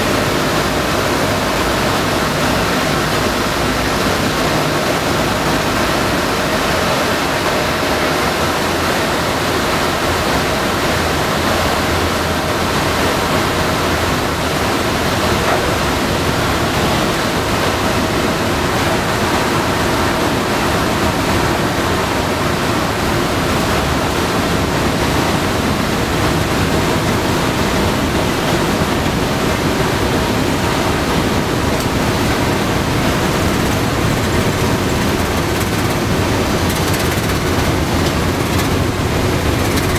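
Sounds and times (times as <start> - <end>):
aircraft radial engines: 0.0 - 39.9.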